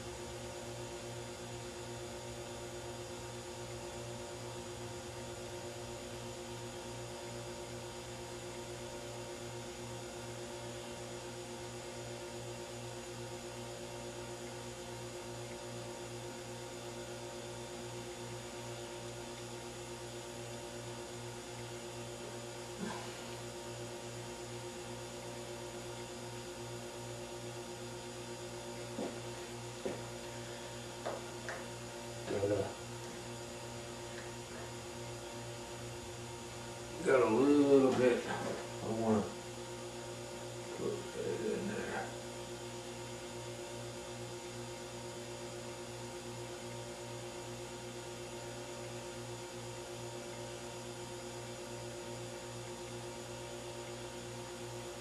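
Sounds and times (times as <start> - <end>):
electrical hum: 0.0 - 55.0.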